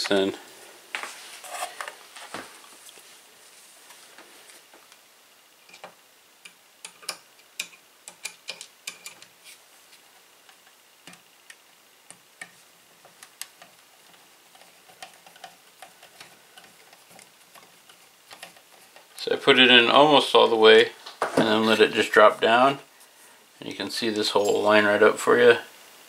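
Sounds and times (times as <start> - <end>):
screwdriver clicks and taps: 5.7 - 9.3.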